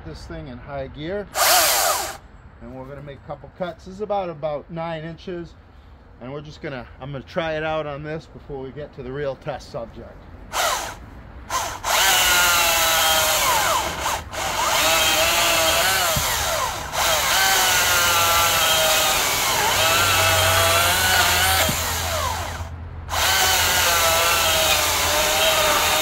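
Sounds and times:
electric chainsaw cutting log: 1.4 - 2.2, 10.5 - 26.0.

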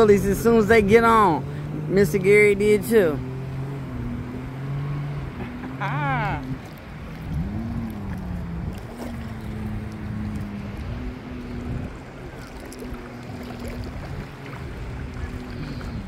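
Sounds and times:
distant jet ski engine: 0.0 - 16.0
water lapping: 0.0 - 16.0
wind on microphone: 6.3 - 16.0.

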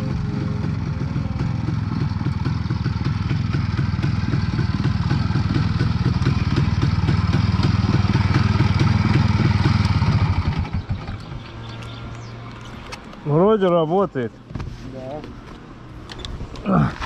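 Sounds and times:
two-stroke motorcycle engine running: 0.0 - 12.3.

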